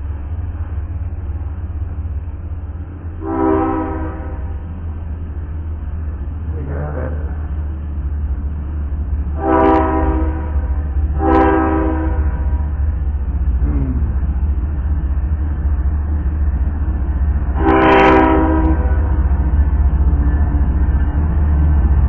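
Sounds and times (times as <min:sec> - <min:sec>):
low rumble: 0:00.0 - 0:22.0
locomotive air horn blasts: 0:03.2 - 0:04.5, 0:09.4 - 0:10.6, 0:11.2 - 0:12.4, 0:17.6 - 0:19.0.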